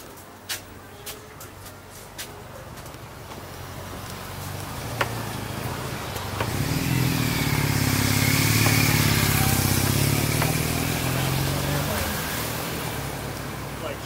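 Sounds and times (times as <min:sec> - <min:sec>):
vehicle engine running: 0:03.4 - 0:12.2.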